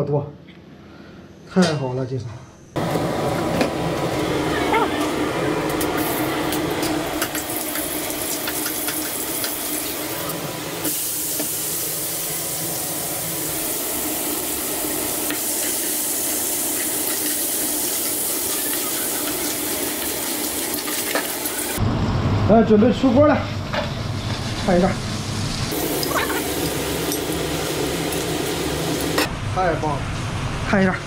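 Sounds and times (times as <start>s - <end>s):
crabs sizzling in a wok: 2.8s - 21.8s, 23.6s - 29.3s.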